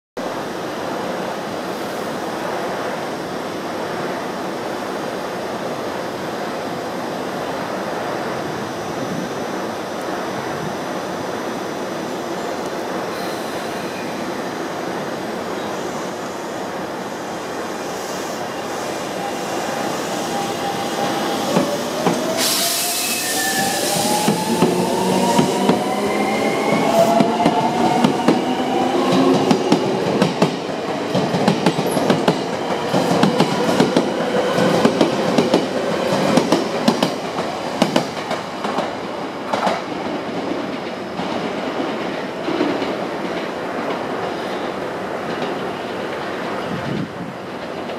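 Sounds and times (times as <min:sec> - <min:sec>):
air hiss: 0:13.1 - 0:14.2, 0:15.8 - 0:25.8.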